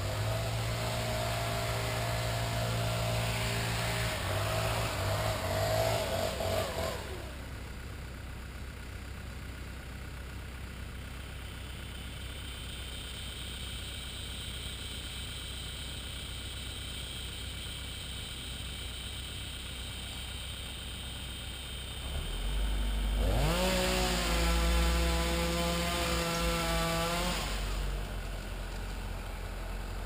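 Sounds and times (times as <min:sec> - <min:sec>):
engine running and shutting off: 0:00.0 - 0:30.0.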